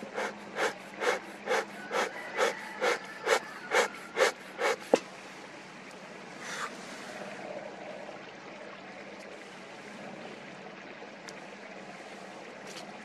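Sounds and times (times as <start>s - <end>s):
bellows puffing air: 0.0s - 5.0s.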